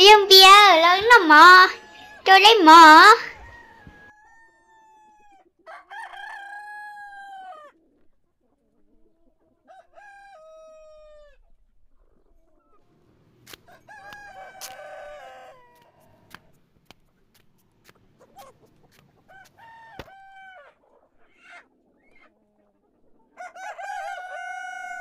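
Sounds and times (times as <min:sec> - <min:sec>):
rooster crowing: 0:01.6 - 0:02.4, 0:03.2 - 0:07.8, 0:09.7 - 0:11.4, 0:13.7 - 0:16.2, 0:19.3 - 0:20.7, 0:23.4 - 0:25.0.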